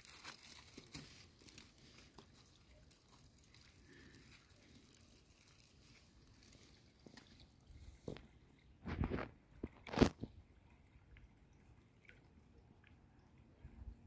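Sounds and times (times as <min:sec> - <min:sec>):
thin plastic bag rustling: 0:00.0 - 0:07.4.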